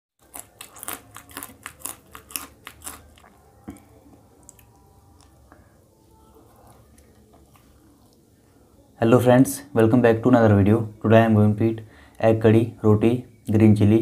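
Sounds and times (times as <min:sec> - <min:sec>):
person crunching chili pepper: 0:00.2 - 0:05.5.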